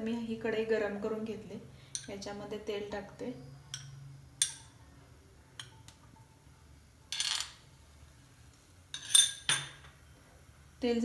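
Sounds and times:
spoon clinking against glass bowl: 3.6s - 4.8s, 5.6s - 5.8s.

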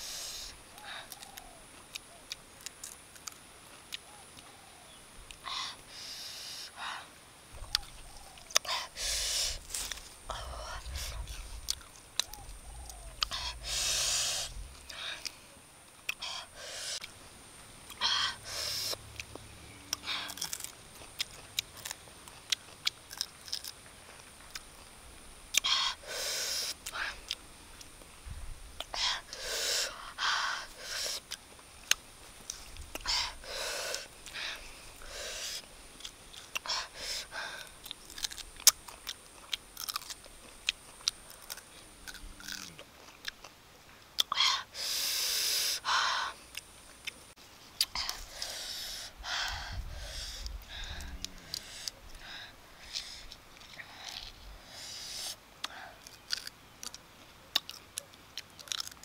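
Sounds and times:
woman's sharp hissing breaths: 0.0s - 1.1s, 5.5s - 7.1s, 8.6s - 11.2s, 13.3s - 15.4s, 16.2s - 17.1s, 18.0s - 19.0s, 25.6s - 27.2s, 29.0s - 31.2s, 33.0s - 35.6s, 36.6s - 37.7s, 44.4s - 46.4s, 48.0s - 53.3s, 53.9s - 56.0s
mouth clicks: 7.6s - 15.4s, 25.5s - 27.9s, 28.8s - 43.5s, 44.2s - 47.2s, 47.8s - 59.0s
mouth clicks and lip smacks: 44.2s - 45.8s, 55.1s - 59.0s.

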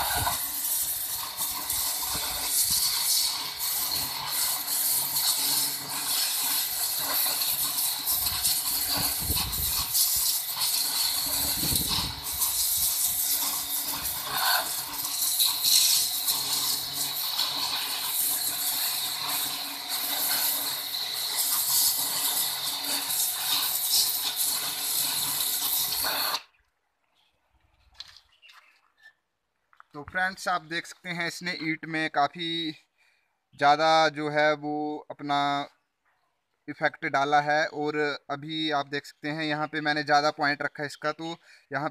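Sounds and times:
pressure washer spray on brick: 0.0s - 26.6s.

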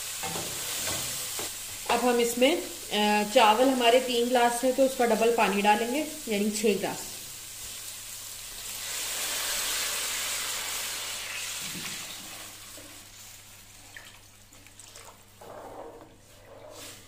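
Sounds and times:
water pouring into a pot: 8.5s - 15.3s.

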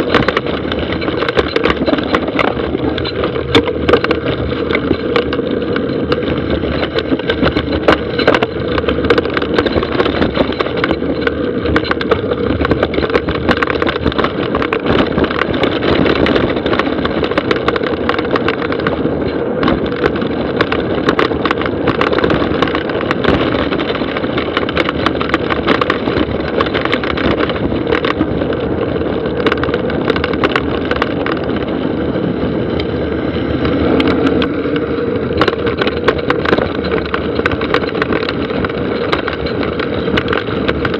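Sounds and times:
bike rattling over bumps: 0.0s - 40.9s
tyre and wind rush: 0.0s - 40.9s.

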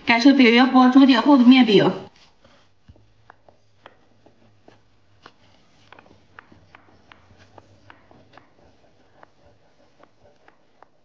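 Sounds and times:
rolling pin knocking on wooden board: 5.8s - 10.9s.

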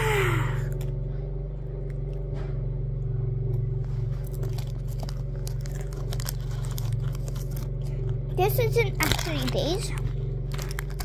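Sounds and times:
steady low hum: 0.0s - 11.0s
person crunching food: 4.1s - 8.3s, 8.9s - 11.0s.

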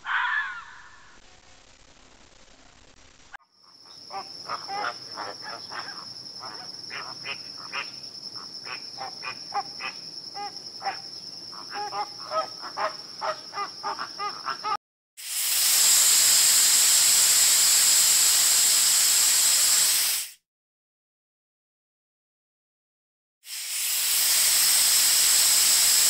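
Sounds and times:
snake hissing: 4.0s - 11.0s, 11.7s - 20.4s, 23.5s - 26.0s
flamingos honking: 4.1s - 7.9s.

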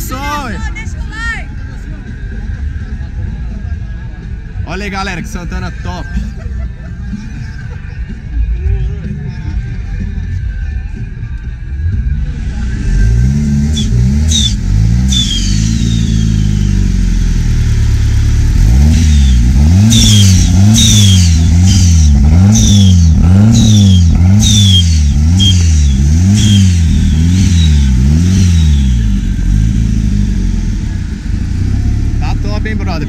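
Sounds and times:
car engine revving in blips: 11.8s - 33.0s
high falling turbo whistle: 13.8s - 16.7s, 19.2s - 21.9s, 22.5s - 29.2s.

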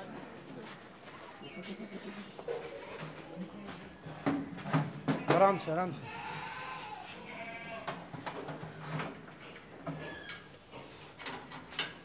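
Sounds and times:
goat bleating: 5.6s - 8.0s.

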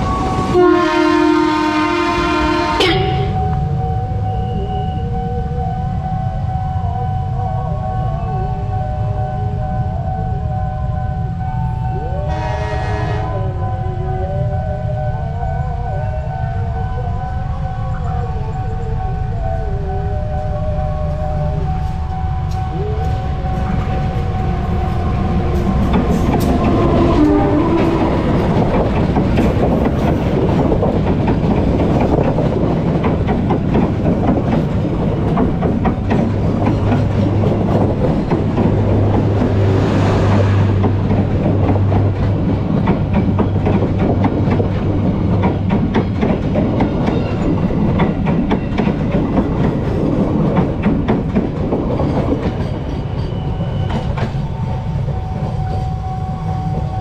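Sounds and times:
passenger train passing: 0.0s - 57.0s
wheels clickety-clack on rail joints: 17.3s - 57.0s.

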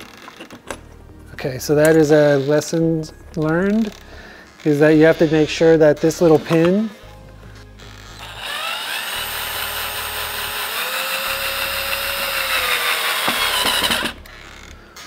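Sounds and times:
cordless drill motor whining: 3.8s - 15.0s.

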